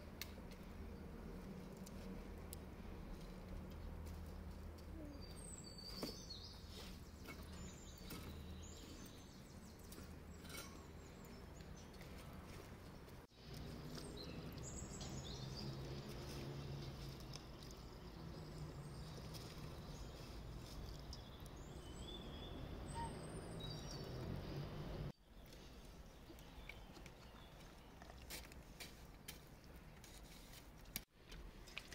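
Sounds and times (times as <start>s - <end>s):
bird chirps: 5.0s - 12.0s, 17.7s - 24.7s.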